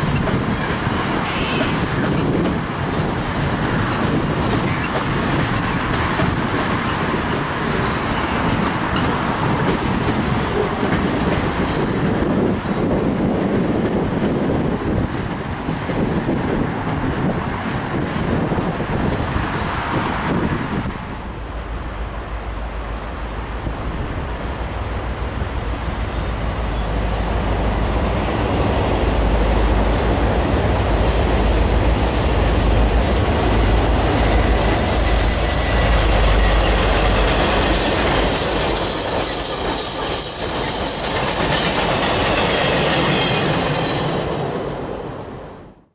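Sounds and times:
train wheels clattering and squealing: 0.0 - 18.4, 29.2 - 45.0
train engine and rail rumble: 0.0 - 45.9.

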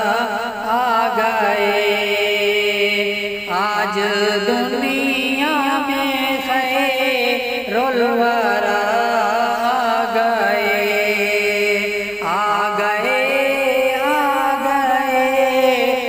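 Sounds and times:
wordless ornamented vocal melody: 0.0 - 16.0.

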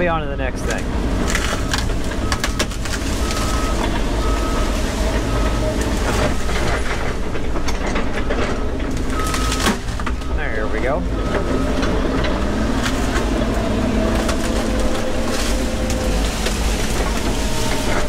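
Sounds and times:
excavator diesel engine: 0.0 - 18.0
wood and branches cracking: 0.6 - 18.0
warning alarm beeps: 1.5 - 6.4, 8.2 - 12.7.

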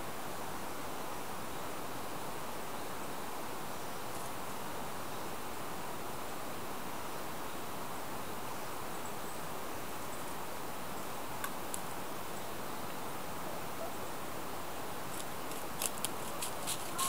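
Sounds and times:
forest background hiss: 0.0 - 17.0
faint ticks: 11.4 - 11.9, 15.1 - 17.0
footsteps on dry leaves: 15.1 - 17.0.

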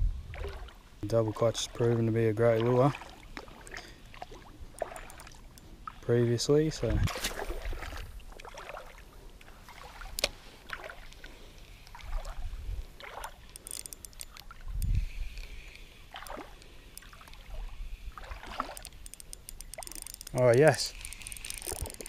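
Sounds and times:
water sloshing and lapping: 0.0 - 22.0
fishing reel winding: 4.7 - 5.7, 13.2 - 22.0.

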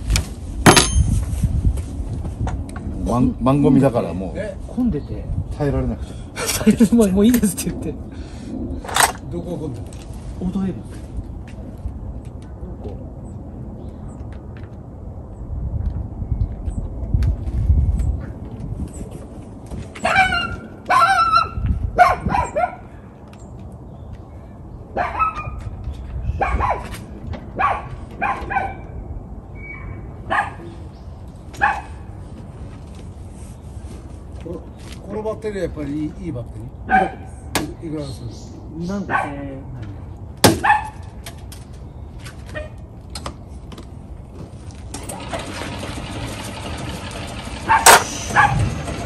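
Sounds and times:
small dog barking and yipping: 20.0 - 22.8, 25.0 - 25.7, 26.4 - 26.9, 27.6 - 28.9, 29.7 - 30.7, 31.6 - 32.1, 40.6 - 41.0, 47.6 - 48.7.

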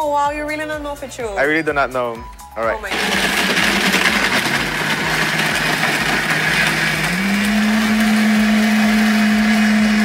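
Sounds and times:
countertop blender running: 2.9 - 10.0.

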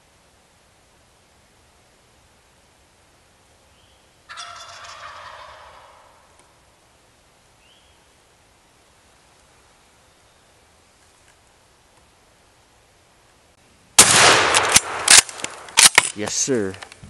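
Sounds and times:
turkey gobbling: 4.3 - 6.6.

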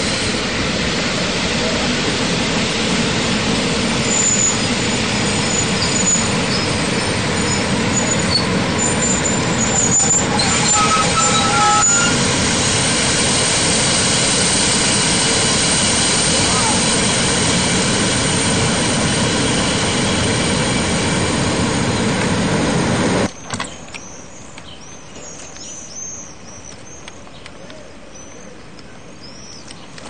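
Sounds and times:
locomotive rumbling: 0.0 - 24.0
low squeals: 2.3 - 23.3
high squeals: 4.0 - 18.6.

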